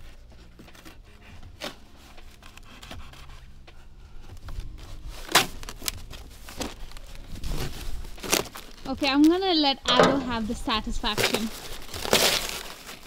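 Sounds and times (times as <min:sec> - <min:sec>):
cardboard box being torn open: 0:05.2 - 0:08.8, 0:11.2 - 0:13.0.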